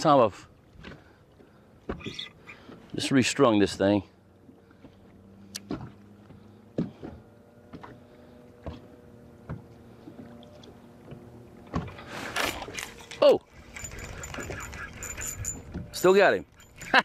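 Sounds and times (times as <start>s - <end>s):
small waves knocking against hull: 0.6s - 3.0s, 4.4s - 12.8s.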